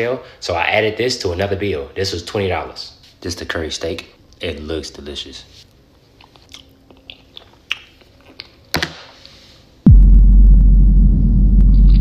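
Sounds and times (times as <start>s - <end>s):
microphone handling rumble: 9.9s - 12.0s.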